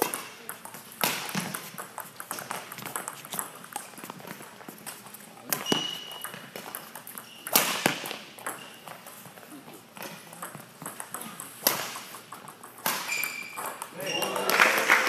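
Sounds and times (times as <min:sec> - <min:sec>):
rackets hitting shuttlecock: 0:00.0 - 0:14.5
short high squeak: 0:05.6 - 0:06.2, 0:13.1 - 0:14.4.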